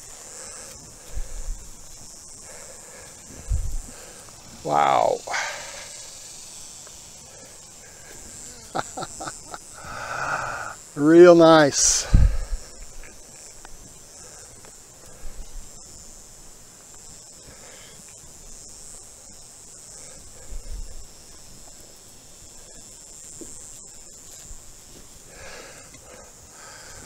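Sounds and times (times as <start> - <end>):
soft bumps and rustles in soil: 0.0 - 4.8, 11.0 - 27.0
high-pitched insect drone: 0.0 - 27.0.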